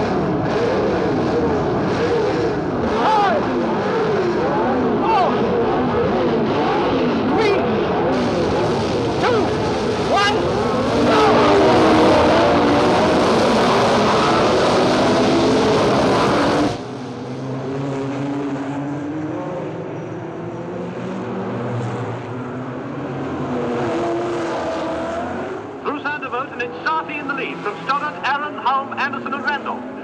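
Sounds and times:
race car engines revving: 0.0s - 30.0s.

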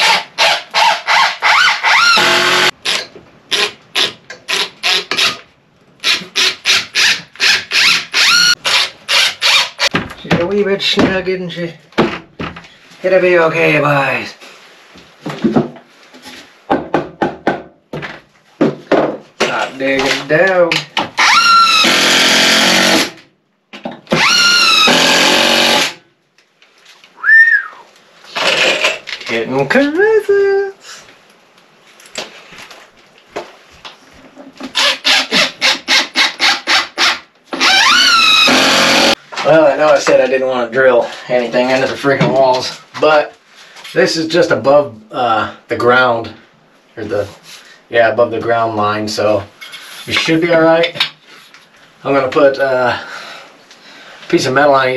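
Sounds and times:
cordless drill whine: 1.9s - 2.7s, 24.2s - 25.9s, 37.6s - 39.1s.

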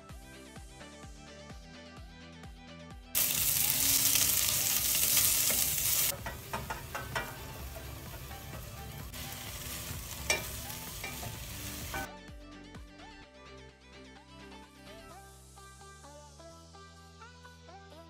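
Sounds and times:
onion sizzling in hot oil: 3.2s - 12.1s
spatula stirring in pot: 5.5s - 12.0s
spatula knocking against pot: 6.1s - 8.5s.

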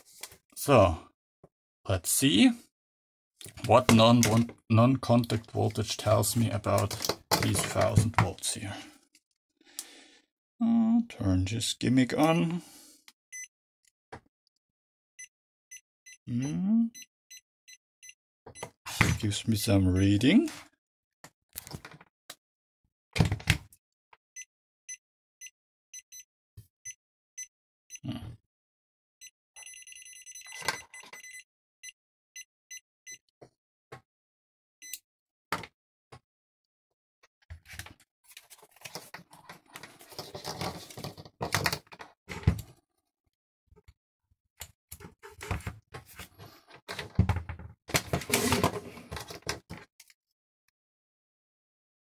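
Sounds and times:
test meters handled on desk: 37.6s - 42.7s.

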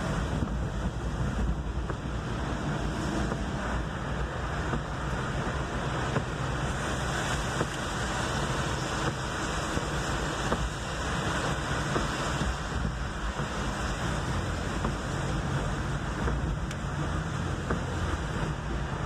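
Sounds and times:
car rumble: 0.0s - 19.0s
tyres hissing on wet road: 0.0s - 19.0s.

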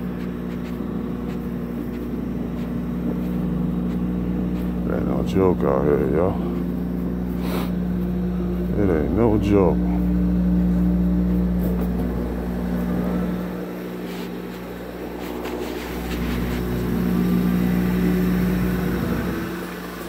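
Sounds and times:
low mechanical hum: 0.0s - 20.0s
jacket rubbing phone: 13.6s - 16.8s.

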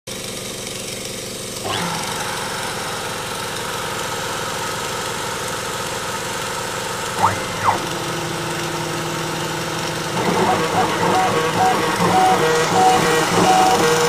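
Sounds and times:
brief rising whine: 7.2s - 8.7s.

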